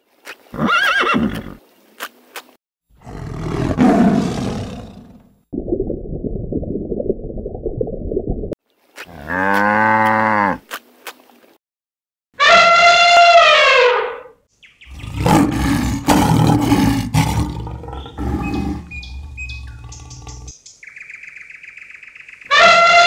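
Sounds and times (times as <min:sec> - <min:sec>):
cow mooing: 0:09.2 - 0:10.6, 0:14.9 - 0:20.5
harsh noisy animal call: 0:14.8 - 0:20.5.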